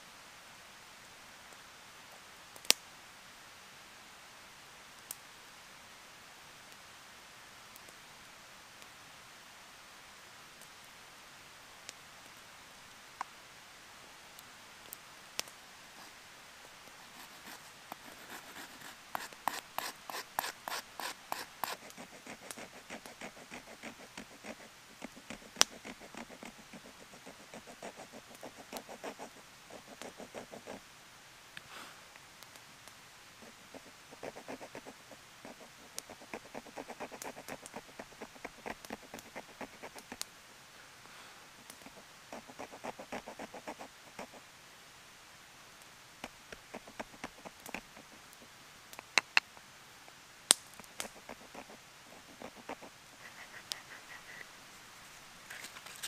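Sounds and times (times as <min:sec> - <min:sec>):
carving tool scraping wood: 0:17.2 - 0:30.8, 0:35.5 - 0:40.2, 0:46.6 - 0:48.1, 0:50.9 - 0:54.5.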